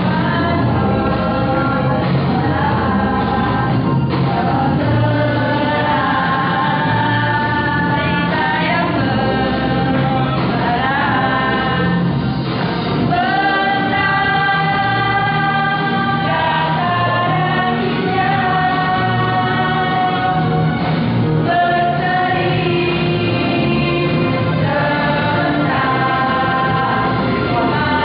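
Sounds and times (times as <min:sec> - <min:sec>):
choir singing long held notes: 0:13.0 - 0:28.0.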